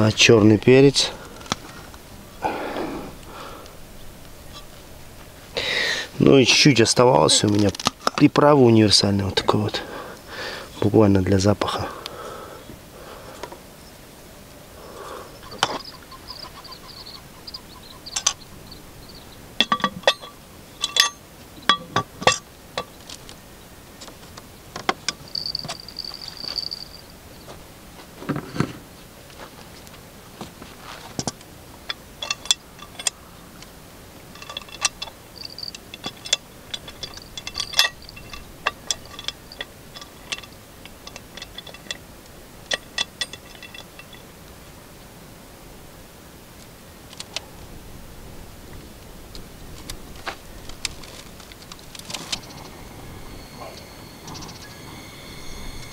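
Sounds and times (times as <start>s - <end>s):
metal cookware clinking: 19.6s - 22.9s, 34.4s - 42.0s, 42.7s - 44.2s.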